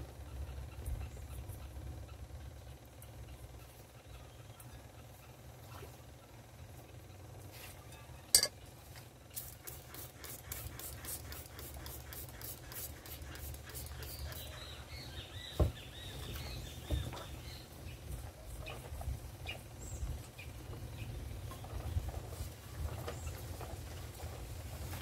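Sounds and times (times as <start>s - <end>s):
spray bottle squirts: 9.4s - 14.4s.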